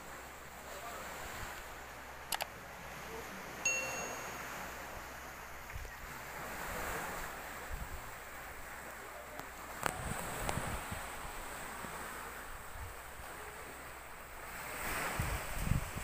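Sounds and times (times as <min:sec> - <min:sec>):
sea surf: 0:00.0 - 0:16.0
bright bell-like ding: 0:03.7 - 0:04.8
wind on microphone: 0:05.6 - 0:08.7, 0:09.7 - 0:13.5, 0:14.4 - 0:16.0.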